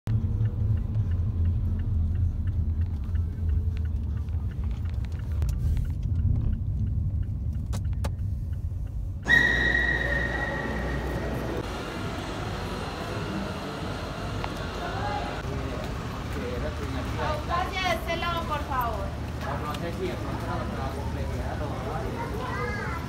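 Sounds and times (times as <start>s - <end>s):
faint ticks: 0.1s - 9.2s
road rumble inside car: 0.1s - 17.0s
hall ambience: 0.2s - 16.9s
steady high-pitched tone: 9.2s - 15.4s.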